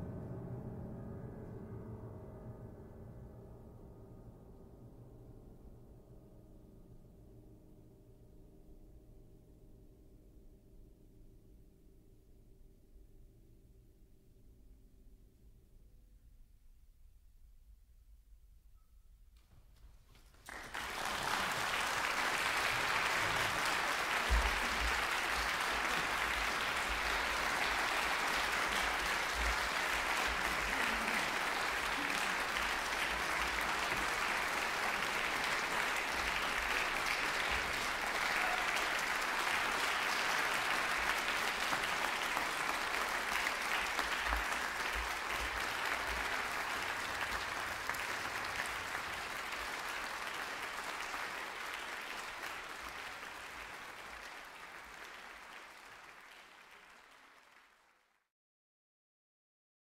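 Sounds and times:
audience applauding: 0:20.1 - 0:58.2.

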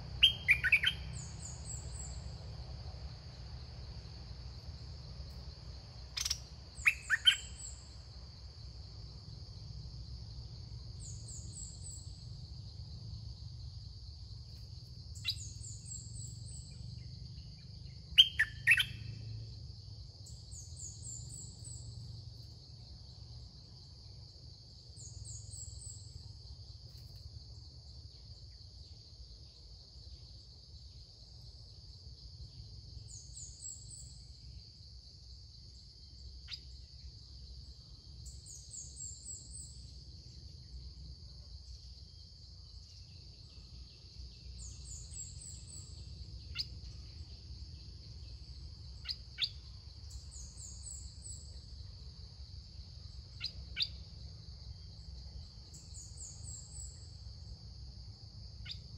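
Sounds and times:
sharp bird chirps: 0:00.0 - 0:02.3, 0:06.1 - 0:08.0, 0:14.6 - 0:19.3
insect drone: 0:00.0 - 0:58.9
quick high bird chirps: 0:00.2 - 0:01.3, 0:06.2 - 0:07.6.

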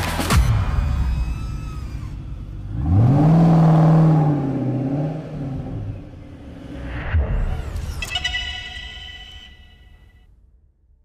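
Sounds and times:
car engine revving: 0:02.0 - 0:07.8.

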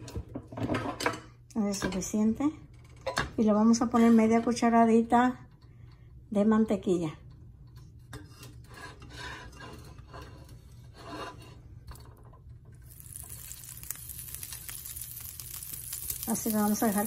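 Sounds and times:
butter sizzling in oil: 0:12.8 - 0:17.0.

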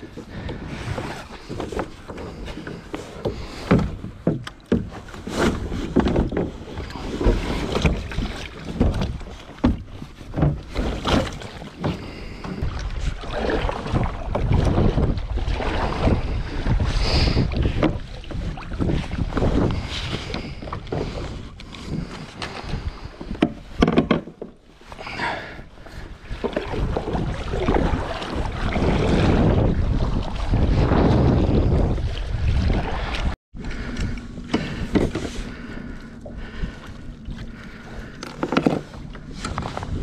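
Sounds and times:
paddle splashes in water: 0:00.0 - 0:40.0
wind buffeting microphone: 0:12.1 - 0:23.8, 0:26.0 - 0:40.0
knocks against hollow kayak hull: 0:23.2 - 0:24.6.

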